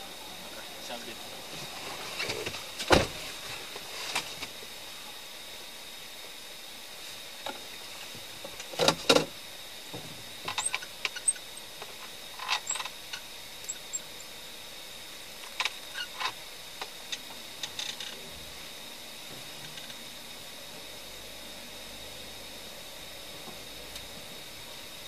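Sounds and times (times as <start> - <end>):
faint high whine: 0.0 - 25.0
steady hiss: 0.0 - 25.0
rustles: 1.5 - 4.6.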